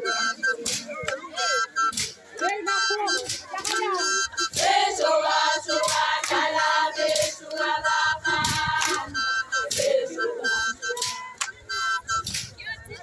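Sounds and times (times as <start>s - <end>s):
group singing in chorus: 4.4s - 11.3s
sharp percussive hits: 5.7s - 7.4s.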